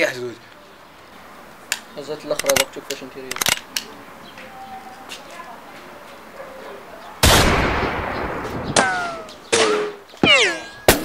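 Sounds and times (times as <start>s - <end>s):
gunshot with echo: 7.2s - 11.0s
ricochet whines: 7.2s - 11.0s.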